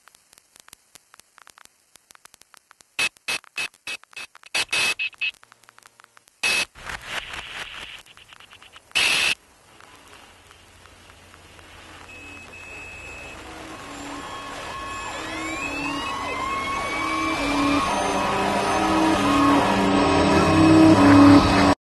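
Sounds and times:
crackling clicks: 0.0s - 16.8s
choppy bursts of hissing static: 0.0s - 18.9s.

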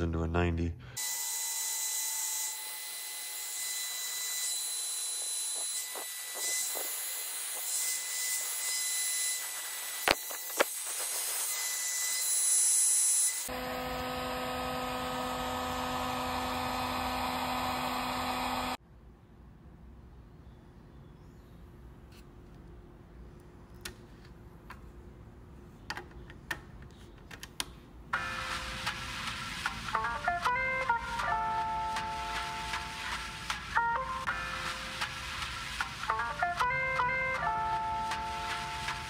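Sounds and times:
heat gun blowing: 3.8s - 11.8s, 13.4s - 18.8s.

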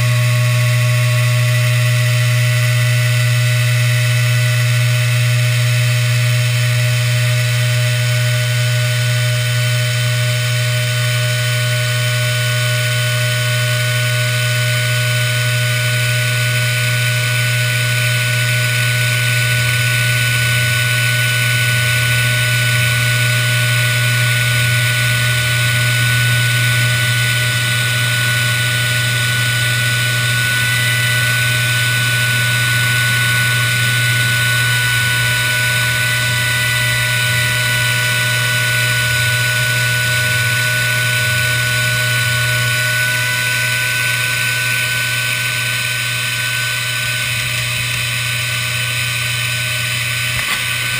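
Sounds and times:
router spindle whine: 0.0s - 50.9s.

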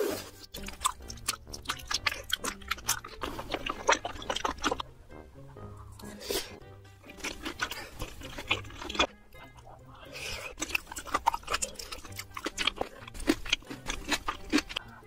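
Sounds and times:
slurping noodles and broth: 0.0s - 4.8s, 6.0s - 9.1s
wet chewing: 0.0s - 5.0s, 5.8s - 15.0s.

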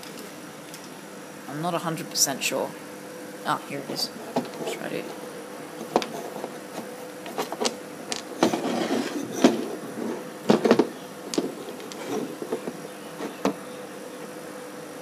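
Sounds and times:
handling clicks knocks and rustles: 5.8s - 9.8s, 10.5s - 13.6s.

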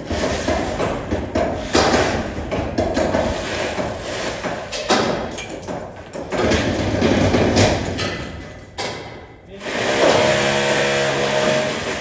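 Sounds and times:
electric drill whining: 9.6s - 12.0s.

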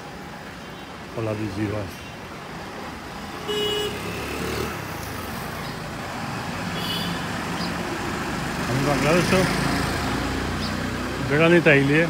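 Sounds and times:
street traffic passing: 0.0s - 12.0s
vehicle horn toot: 3.5s - 4.0s.

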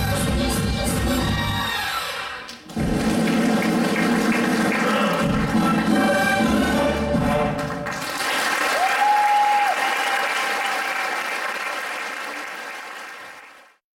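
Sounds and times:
dance music: 0.0s - 7.8s
audience applauding: 2.6s - 6.4s, 7.4s - 13.8s.

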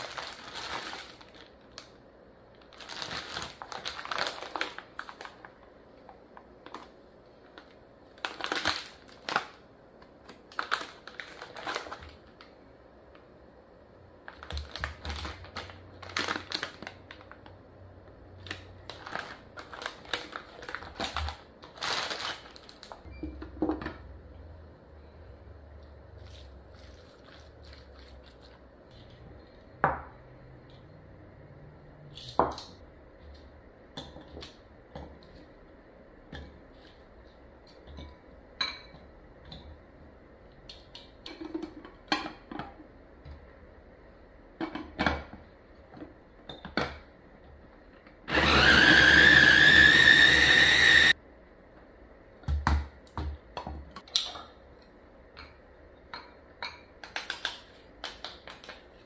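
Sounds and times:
electric food chopper whining: 48.3s - 51.2s.

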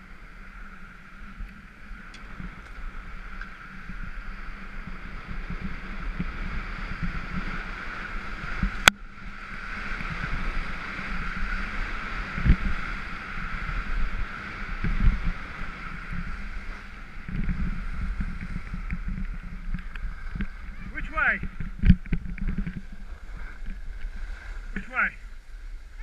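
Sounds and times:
wind buffeting microphone: 0.0s - 26.0s
skis hissing over snow: 9.4s - 21.4s, 22.8s - 26.0s.

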